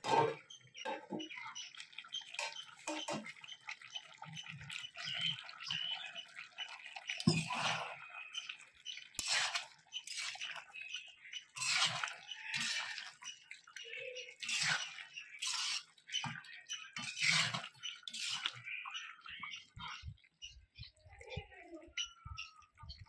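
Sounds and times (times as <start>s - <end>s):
metal spatula scraping pan: 0.0s - 1.2s, 7.2s - 8.0s, 9.2s - 10.6s, 11.5s - 13.4s, 14.4s - 16.3s, 16.9s - 18.6s
curry sloshing in pan: 0.4s - 20.4s.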